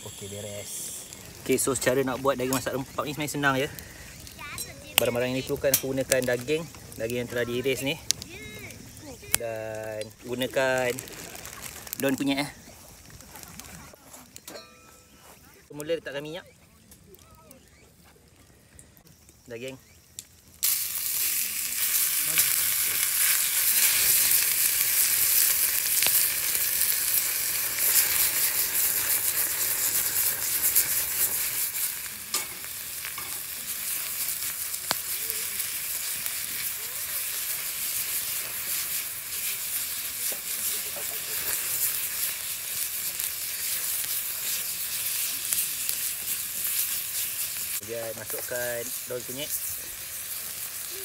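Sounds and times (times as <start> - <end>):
beef sizzling in oil: 0.0 - 14.9, 19.3 - 51.0.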